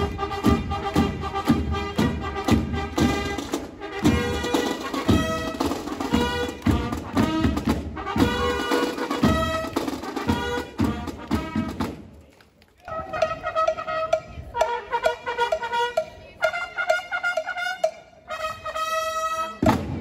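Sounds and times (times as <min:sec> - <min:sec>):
drums beating: 0:00.0 - 0:12.0, 0:19.6 - 0:20.0
marching band playing: 0:00.0 - 0:12.2, 0:12.9 - 0:20.0.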